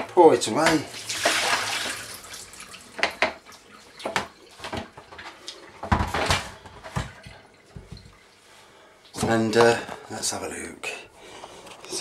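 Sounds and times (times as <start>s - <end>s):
water poured from bucket: 0.8s - 5.2s
plastic bucket knocking: 5.8s - 8.2s.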